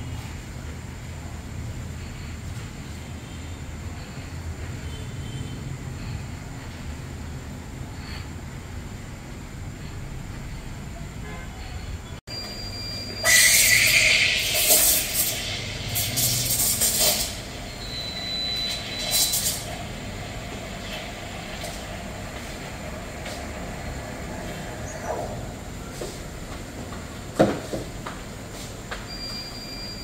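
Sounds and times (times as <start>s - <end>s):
thin whistle: 11.6s - 19.6s
steam wand hissing into milk: 13.2s - 17.6s.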